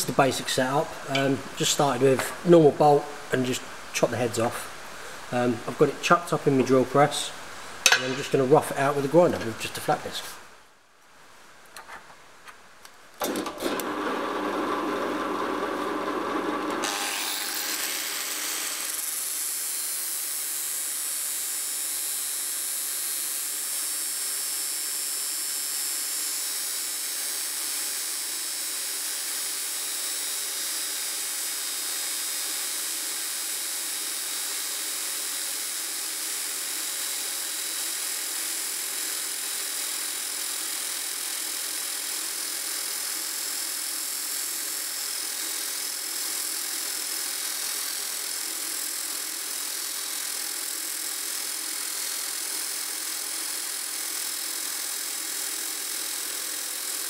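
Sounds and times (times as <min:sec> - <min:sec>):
angle grinder grinding steel: 0:16.4 - 0:24.0, 0:26.4 - 0:57.0.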